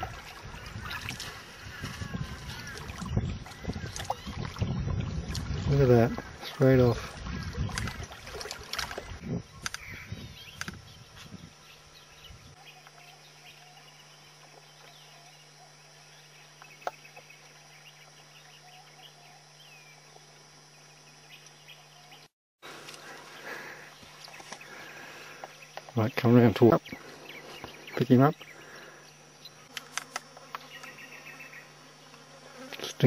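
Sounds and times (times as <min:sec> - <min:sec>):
insects: 0:00.0 - 0:33.0
steady low hum: 0:00.0 - 0:33.0
faint bird chirps: 0:09.2 - 0:22.3.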